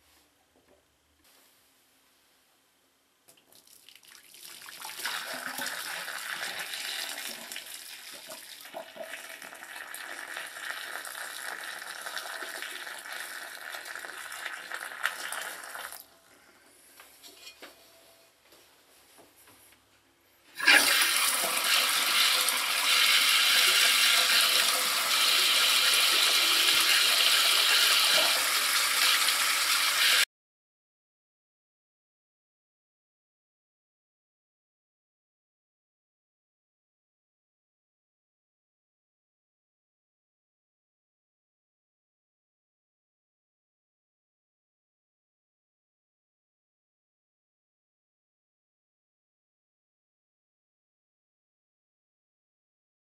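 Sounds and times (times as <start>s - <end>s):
water pouring into a drain: 3.6s - 16.0s, 20.6s - 30.2s.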